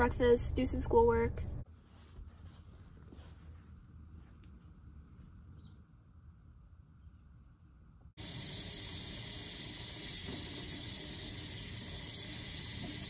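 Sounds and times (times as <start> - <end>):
faucet running into sink: 8.2 - 13.0.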